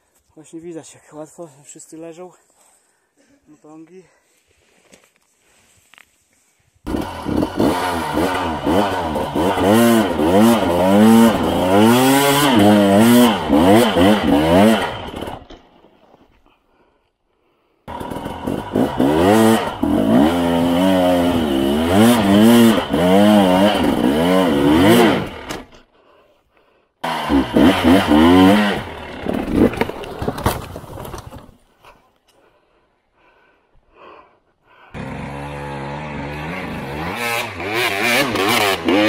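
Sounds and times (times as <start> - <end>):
motorcycle engine revving: 6.9 - 15.4, 17.9 - 25.7, 27.0 - 29.9, 35.0 - 39.0.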